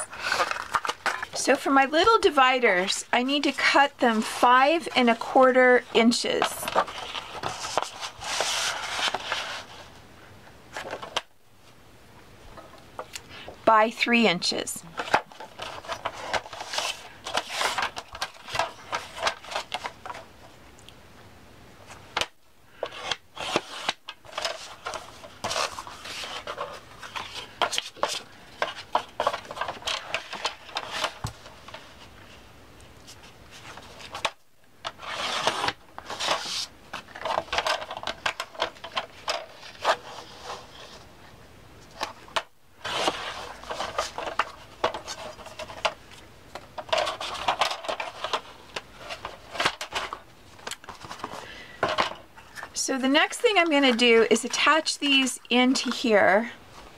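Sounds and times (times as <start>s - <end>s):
paper rustling: 0.0s - 2.4s, 3.4s - 10.0s, 15.0s - 20.2s, 22.7s - 32.4s, 33.0s - 41.1s, 41.8s - 52.8s.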